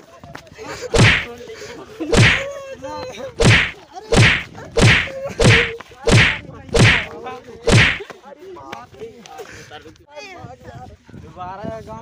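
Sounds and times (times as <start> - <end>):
heavy whacks of blows: 0.9 - 1.3, 2.1 - 2.4, 3.4 - 7.1, 7.7 - 8.0.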